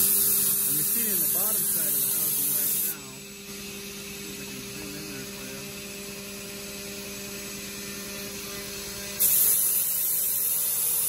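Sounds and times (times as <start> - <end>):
coolant spray hiss: 0.0 - 3.2, 9.2 - 11.0
milling machine drone: 0.0 - 11.0.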